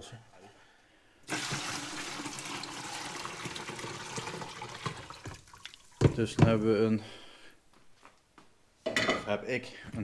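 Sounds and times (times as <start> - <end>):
water running into container: 1.2 - 6.4.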